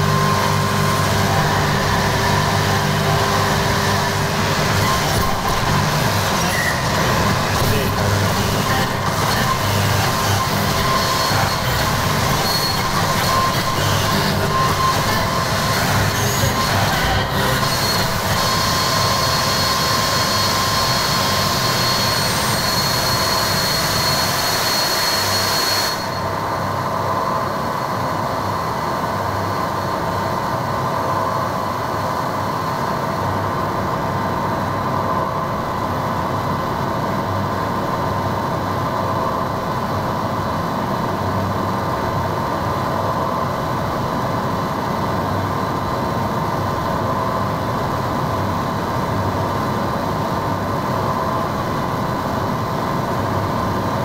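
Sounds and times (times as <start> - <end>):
distorted electronic noise: 0.0 - 18.5
high whine: 0.0 - 54.0.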